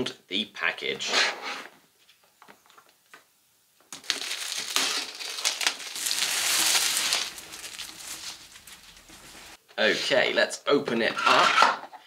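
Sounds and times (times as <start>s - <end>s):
shrink-wrap crinkling: 3.9s - 9.6s.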